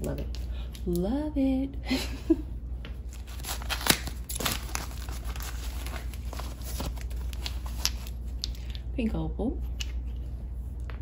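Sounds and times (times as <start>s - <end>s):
packing wrap crinkling and tearing: 3.0s - 8.4s.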